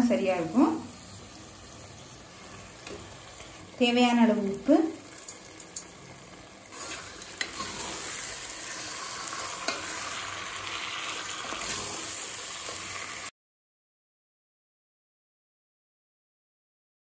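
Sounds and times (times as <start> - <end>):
chicken sizzling in a pan: 0.0 - 13.3
wooden spatula scraping a pot: 6.7 - 10.2, 11.2 - 12.8.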